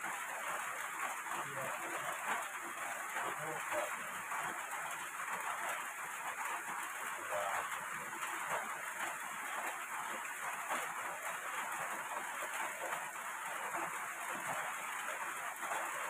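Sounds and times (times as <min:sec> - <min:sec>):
heavy rain falling: 0:00.0 - 0:16.0.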